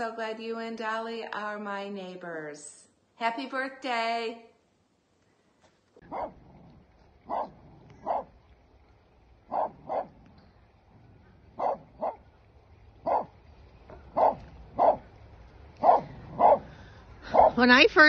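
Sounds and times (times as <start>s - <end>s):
dog barking: 6.0s - 6.4s, 7.2s - 8.3s, 9.5s - 10.2s, 11.6s - 12.2s, 13.0s - 15.1s, 15.8s - 16.7s, 17.3s - 17.7s.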